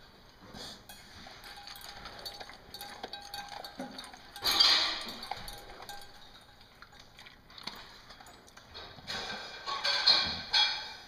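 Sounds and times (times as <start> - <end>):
dog eating from metal bowl: 0.0 - 11.0
metallic clinks against bowl: 0.9 - 8.6.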